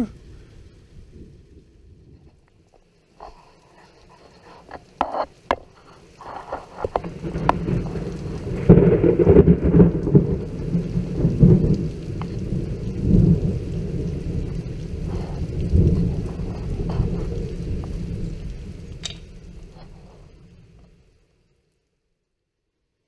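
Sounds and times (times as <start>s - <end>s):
rolling thunder rumble: 0.0s - 2.4s, 6.7s - 21.0s
rain falling: 0.0s - 22.6s
thunder cracks: 7.0s - 20.6s.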